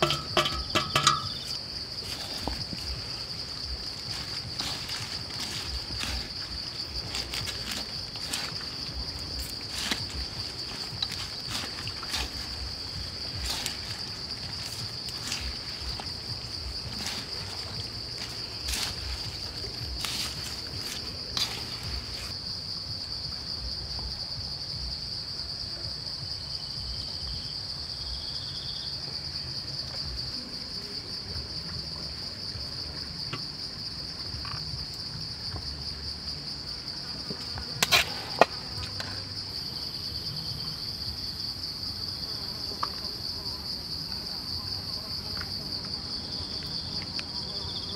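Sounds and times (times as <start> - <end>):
chopsticks scraping metal wok: 0.0 - 2.5, 16.8 - 22.3, 37.8 - 38.5
insects buzzing: 0.0 - 47.9.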